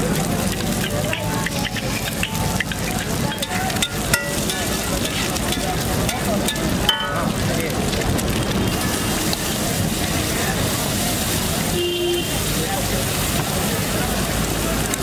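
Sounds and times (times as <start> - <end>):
steel spatula scraping griddle: 0.0 - 7.6
food sizzling in oil: 0.0 - 15.0.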